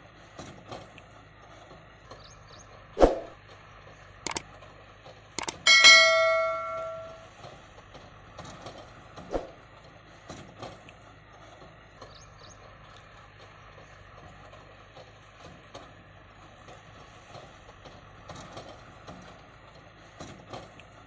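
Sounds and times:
bell-like notification chime: 0:05.4 - 0:07.2.

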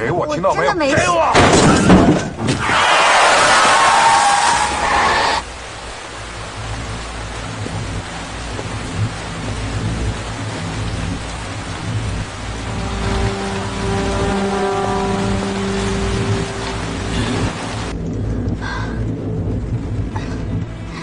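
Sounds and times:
heavy rain pouring: 0:01.0 - 0:21.0
low rumble: 0:05.4 - 0:21.0.

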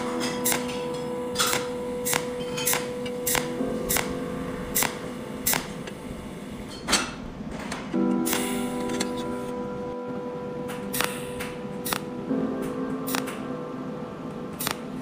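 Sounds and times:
pulse welder snapping clicks: 0:01.4 - 0:04.1, 0:04.8 - 0:06.0, 0:08.3 - 0:08.6, 0:10.7 - 0:12.1, 0:13.1 - 0:13.4, 0:14.6 - 0:14.8.

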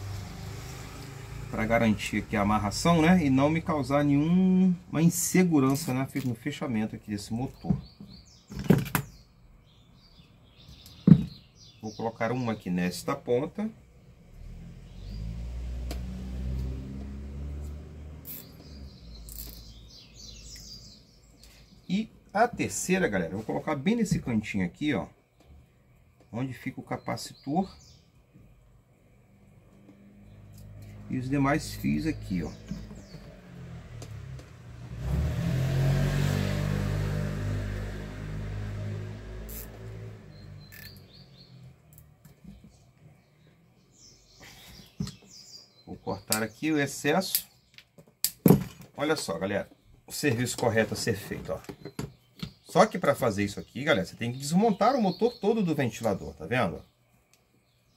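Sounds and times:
passing vehicle engine rumble: 0:00.0 - 0:04.4, 0:13.8 - 0:19.3, 0:29.3 - 0:41.9
birds chirping: 0:00.0 - 0:48.2, 0:48.8 - 0:57.9.

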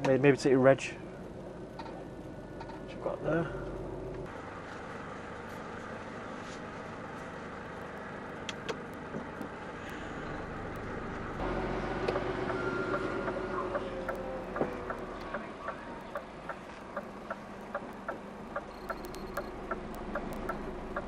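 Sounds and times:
lorry engine and road noise: 0:00.0 - 0:21.0
sharp clicks: 0:12.1 - 0:21.0.

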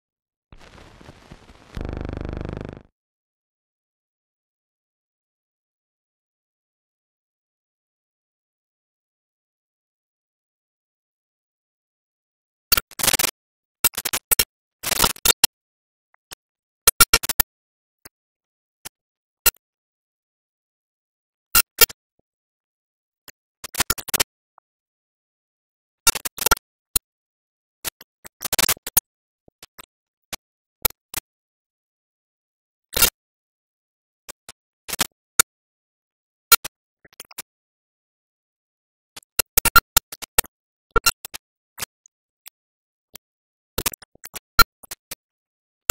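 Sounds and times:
film crackle and pops: 0:00.5 - 0:02.9.

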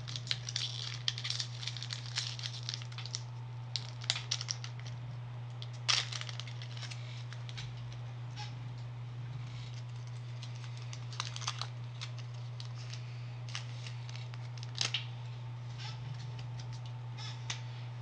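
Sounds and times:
wrapper crinkling: 0:00.0 - 0:08.0, 0:09.5 - 0:15.1
steady low hum: 0:00.0 - 0:18.0.

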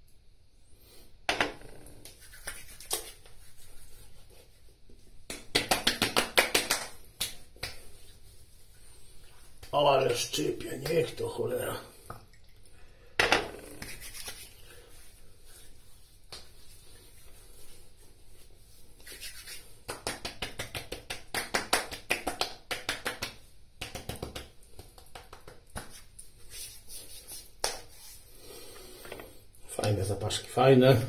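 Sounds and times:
hands slapping skin: 0:02.0 - 0:03.5, 0:05.2 - 0:08.2, 0:13.6 - 0:14.6, 0:16.3 - 0:16.7, 0:19.0 - 0:28.2
hands rubbing skin: 0:02.0 - 0:11.2, 0:13.6 - 0:30.0.

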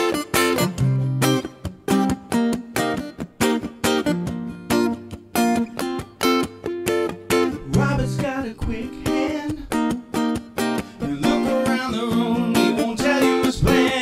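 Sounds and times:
acoustic guitar strumming: 0:00.0 - 0:14.0
man singing: 0:07.5 - 0:10.0, 0:10.8 - 0:14.0.

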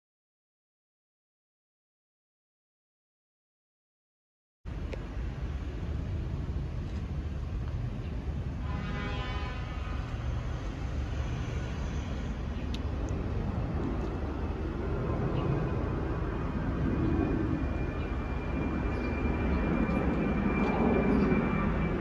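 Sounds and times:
jet airliner rumble: 0:04.7 - 0:22.0
whining tone: 0:09.6 - 0:22.0.

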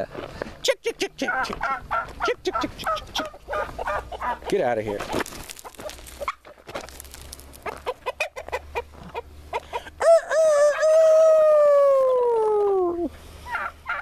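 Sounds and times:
hens clucking: 0:01.0 - 0:06.7, 0:07.6 - 0:11.4, 0:13.4 - 0:14.0
rooster crowing: 0:10.0 - 0:12.3.

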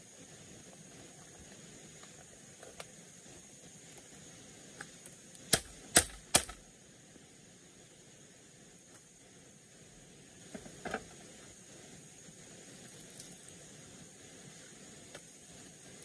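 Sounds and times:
faint steady hiss: 0:00.0 - 0:16.0
machete striking bamboo: 0:05.5 - 0:06.6.

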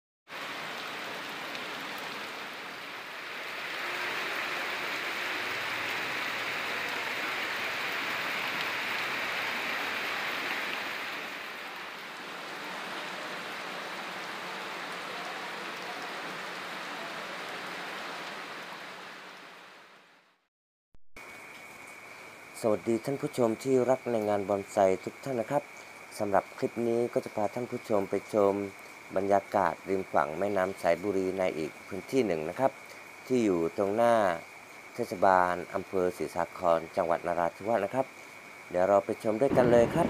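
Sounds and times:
heavy rain pouring: 0:00.3 - 0:20.0, 0:39.2 - 0:40.0.

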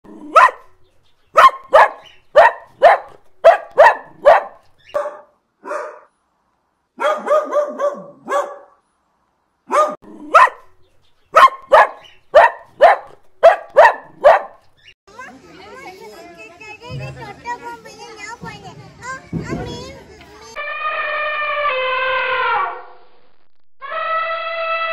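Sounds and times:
dogs barking: 0:00.1 - 0:06.1, 0:07.0 - 0:08.8, 0:09.7 - 0:14.7
short yappy barks: 0:00.3 - 0:00.7, 0:01.4 - 0:06.1, 0:07.0 - 0:08.8, 0:09.7 - 0:10.7, 0:11.3 - 0:14.6.

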